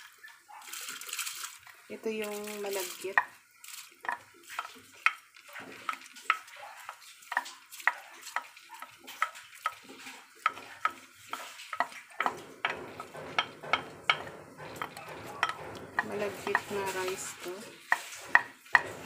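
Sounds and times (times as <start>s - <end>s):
rice poured into metal pot: 0.0s - 12.9s.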